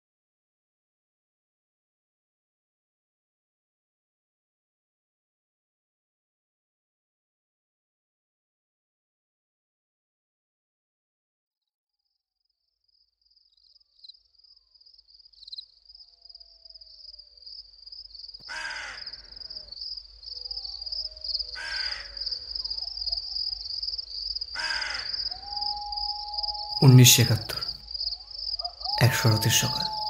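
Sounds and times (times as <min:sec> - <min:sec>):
high insect trill: 0:12.9 - 0:30.0
crow cawing: 0:18.4 - 0:19.8, 0:21.4 - 0:23.3, 0:24.5 - 0:26.0, 0:28.6 - 0:30.0.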